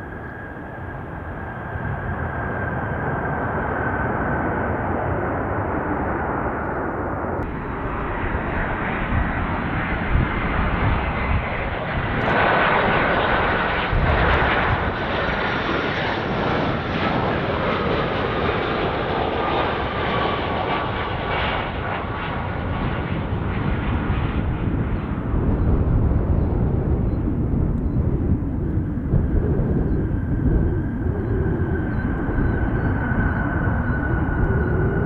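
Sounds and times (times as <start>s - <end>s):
jet engines rushing with whine: 0.0s - 35.0s.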